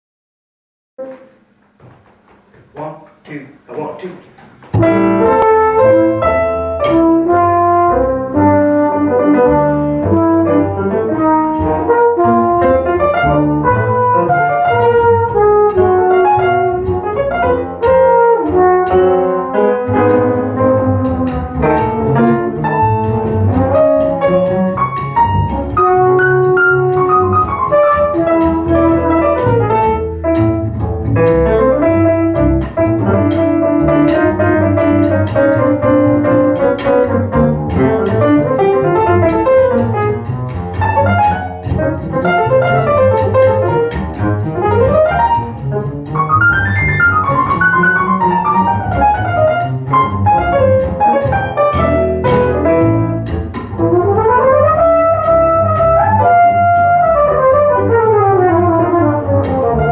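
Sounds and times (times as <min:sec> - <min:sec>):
grand piano: 0:01.0 - 0:02.9, 0:04.4 - 0:59.9
double bass: 0:04.6 - 0:59.9
trumpet: 0:04.8 - 0:21.3, 0:53.8 - 0:59.9.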